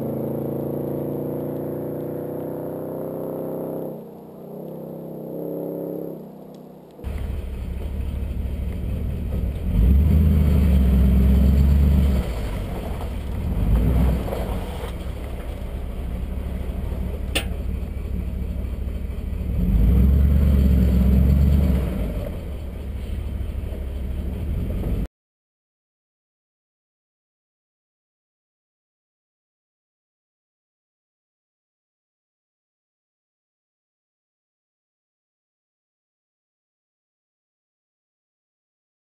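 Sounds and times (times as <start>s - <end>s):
truck engine idling and revving: 0.0s - 25.1s.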